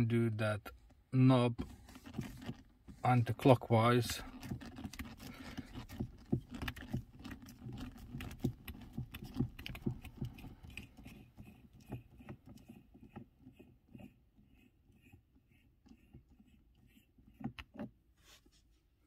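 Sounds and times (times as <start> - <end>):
hand twisting gear knob clicks: 4.3 - 13.7, 17.3 - 18.0.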